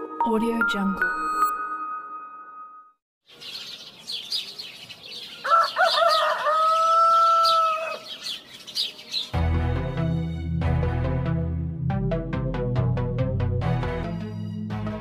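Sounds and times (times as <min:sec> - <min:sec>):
small birds chirping: 0:03.2 - 0:09.4
rooster crowing: 0:05.4 - 0:08.2
music with bass and plucked notes: 0:09.4 - 0:15.0.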